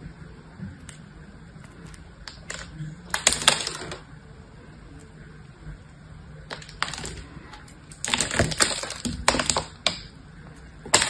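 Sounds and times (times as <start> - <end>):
soap crumbling and cracking: 1.6 - 4.0, 6.5 - 10.1.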